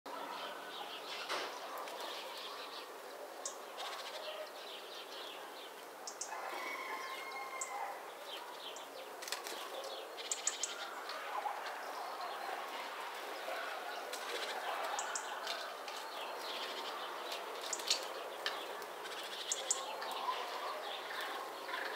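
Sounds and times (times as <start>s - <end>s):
small songbirds chirping: 0.1s - 21.9s
wings fluttering: 9.2s - 9.9s.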